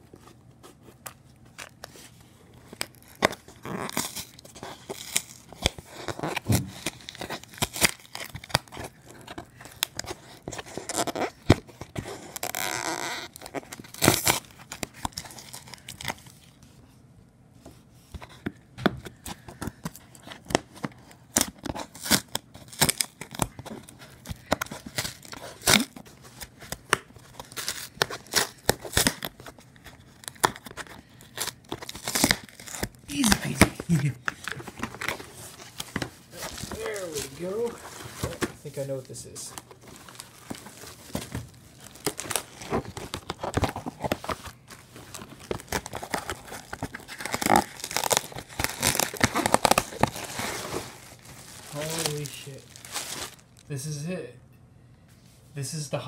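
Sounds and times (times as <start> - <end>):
cardboard and tape ripping: 2.7 - 16.4, 19.6 - 53.7
cardboard crinkling and knocks: 6.1 - 7.5, 33.6 - 38.7, 39.5 - 53.4.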